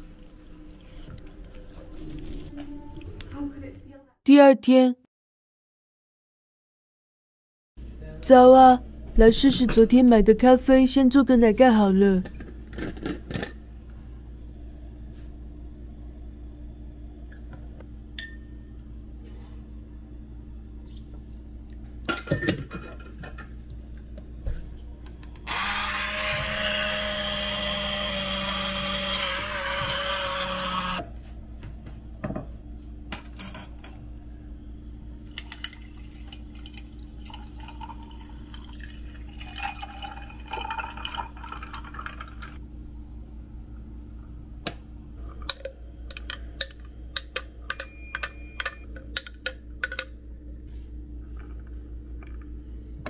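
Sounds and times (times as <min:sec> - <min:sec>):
blender motor running: 0:25.4 - 0:31.0
coffee pouring over ice: 0:35.4 - 0:42.6.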